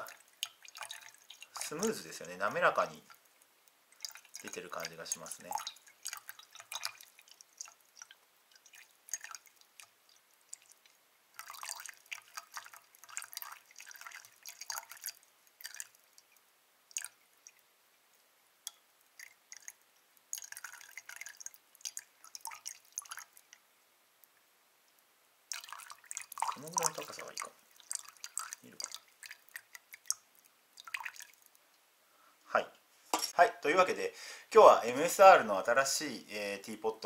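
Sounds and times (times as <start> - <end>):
water pouring into metal mug: 0.0 - 3.2, 3.9 - 16.3, 16.9 - 17.6, 19.2 - 23.4, 25.5 - 30.2, 30.8 - 31.5.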